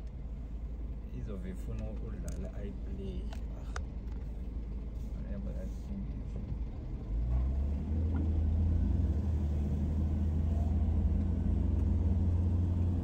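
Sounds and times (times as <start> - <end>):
car interior rumble: 0.0 - 13.0.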